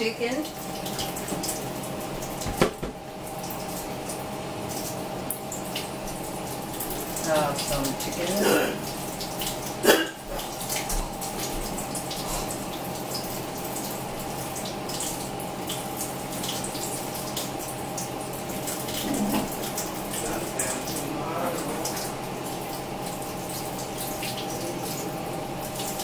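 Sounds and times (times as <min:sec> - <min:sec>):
steady hum: 0:00.0 - 0:26.0
tap water splashing: 0:00.4 - 0:25.1
sharp knock: 0:02.5 - 0:03.0.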